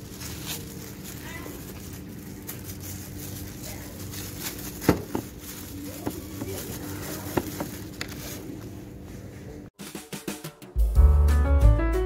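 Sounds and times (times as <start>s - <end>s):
parcel knocks and rustles: 0.1s - 8.4s.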